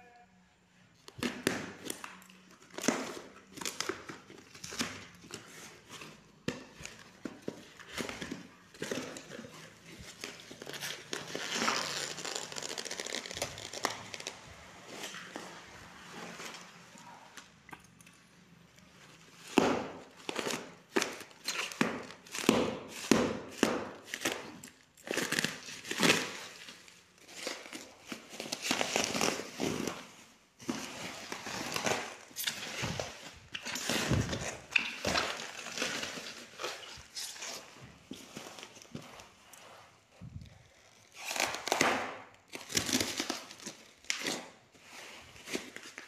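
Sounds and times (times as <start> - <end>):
plastic wrapping crinkling: 1.1 - 17.5, 18.2 - 46.0
packing tape ripping: 6.8 - 15.6, 19.4 - 30.1, 40.4 - 44.6.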